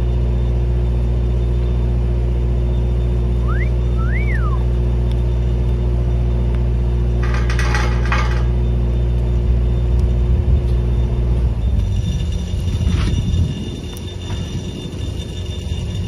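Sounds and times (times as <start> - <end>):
engine running: 0.0 - 16.0
brief rattle: 7.2 - 8.6.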